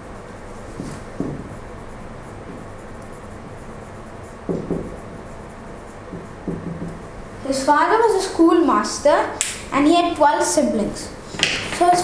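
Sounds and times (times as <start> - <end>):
marker scratching on whiteboard: 0.2 - 9.3.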